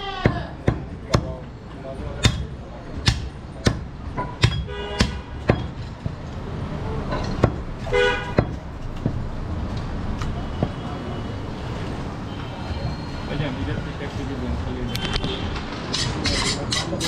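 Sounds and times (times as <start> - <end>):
knife chopping meat on wood: 0.2 - 1.4, 2.2 - 5.7, 8.3 - 9.2
vehicle horn honking: 7.8 - 8.5.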